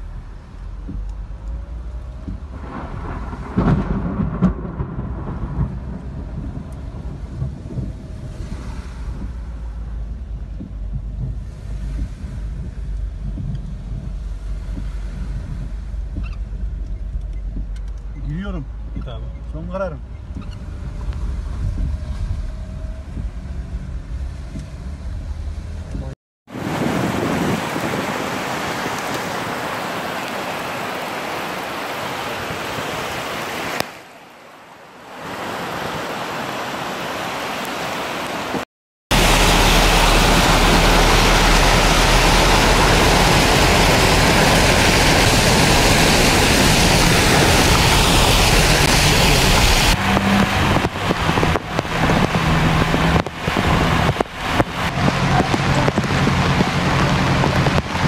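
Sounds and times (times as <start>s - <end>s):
car engine and road noise: 0.0s - 58.0s
tyres throwing up flood water: 38.0s - 58.0s.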